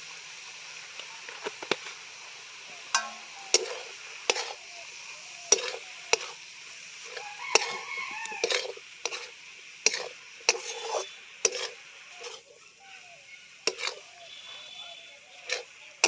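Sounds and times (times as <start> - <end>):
light sizzle: 0.0 - 16.0
metal spatula scraping a wok: 2.9 - 14.4, 15.4 - 15.8.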